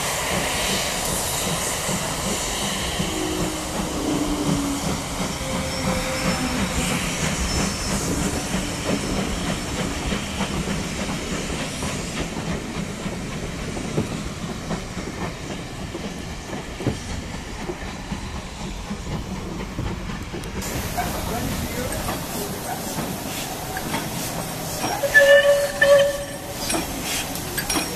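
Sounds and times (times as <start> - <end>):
steam hissing: 0.0 - 27.9
train rumble: 0.0 - 27.9
train wheels clicking over rail joints: 0.2 - 27.9.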